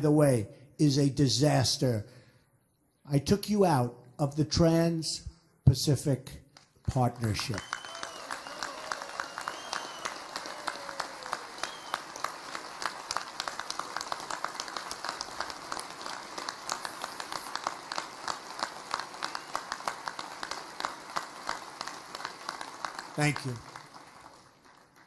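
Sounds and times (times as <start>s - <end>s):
crowd applauding: 6.8s - 25.0s.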